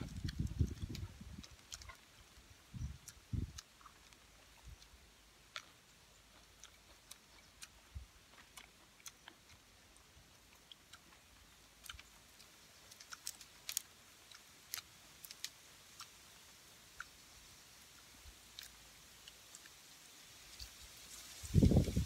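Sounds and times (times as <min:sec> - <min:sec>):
chewing: 0:00.0 - 0:20.8.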